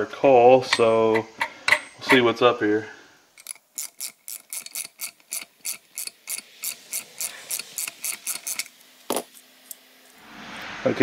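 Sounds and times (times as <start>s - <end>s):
ratchet clicking: 3.4s - 9.2s.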